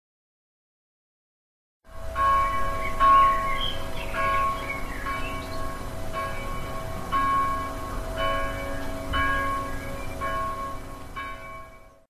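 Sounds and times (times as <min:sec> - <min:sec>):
church bells ringing: 0:01.9 - 0:12.0.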